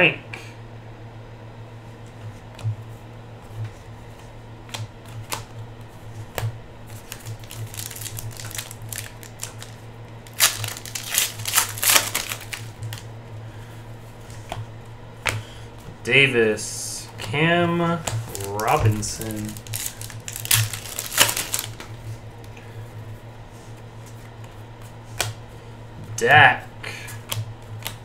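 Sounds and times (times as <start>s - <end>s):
steady low hum: 0.0s - 28.0s
foil wrappers rustling and crinkling: 6.9s - 13.0s, 18.1s - 22.2s.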